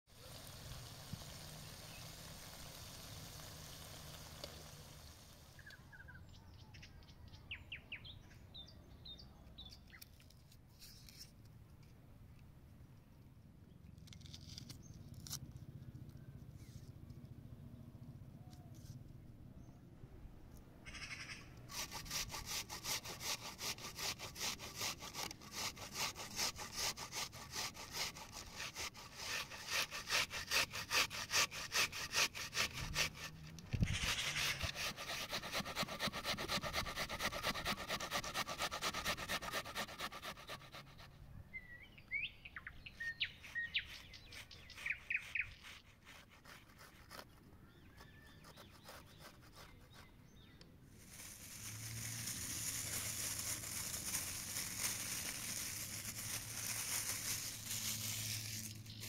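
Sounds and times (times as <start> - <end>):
onion rasping on a grater: 21.7 - 41.0, 43.5 - 50.0, 51.0 - 59.0
birds chirping: 41.3 - 45.7.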